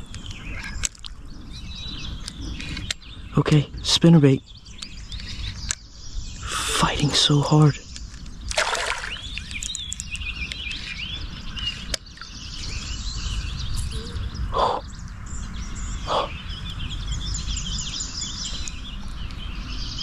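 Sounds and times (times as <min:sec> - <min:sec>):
songbirds chirping: 0:00.0 - 0:20.0
fish splashing at water surface: 0:08.5 - 0:09.4.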